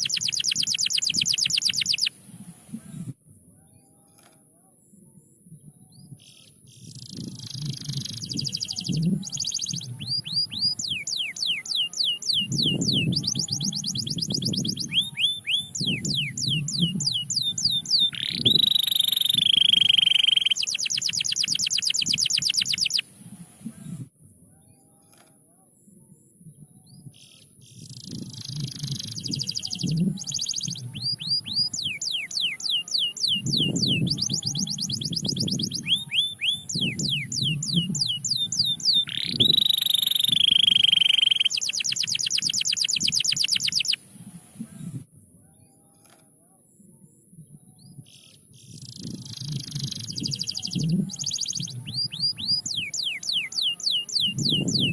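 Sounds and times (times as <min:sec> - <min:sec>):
canary singing trills: 0:00.0 - 0:02.2, 0:05.9 - 0:23.1, 0:26.9 - 0:44.1, 0:47.8 - 0:54.9.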